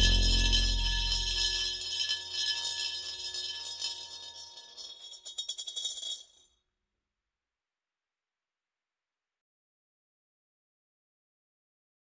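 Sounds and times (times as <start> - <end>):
coin spinning in ceramic bowl: 0.0 - 6.4.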